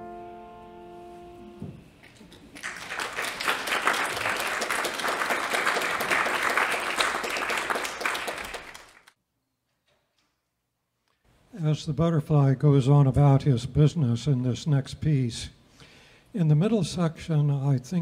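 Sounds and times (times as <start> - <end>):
piano and violin chord: 0.0 - 1.8
audience applauding: 2.3 - 9.2.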